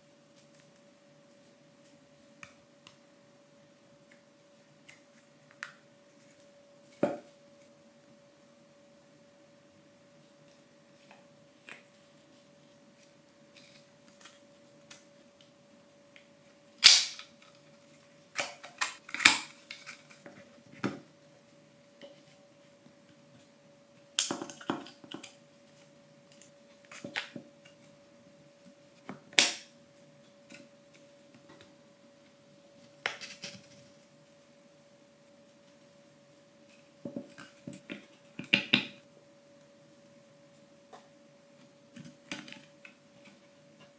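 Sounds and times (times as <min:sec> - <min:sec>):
faint steady hum: 0:00.0 - 0:43.9
plywood pieces snapping: 0:16.8 - 0:17.5, 0:29.3 - 0:29.7.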